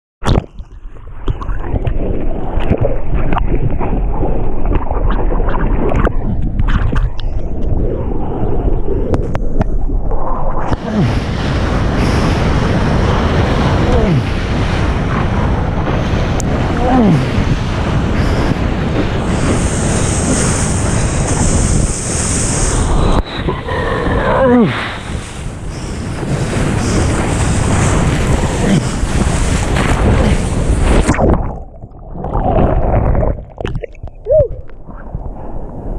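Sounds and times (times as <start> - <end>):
water rushing and splashing: 0.2 - 35.9
wind rumble on microphone: 0.2 - 35.9
loud wave splash: 10.5 - 31.6.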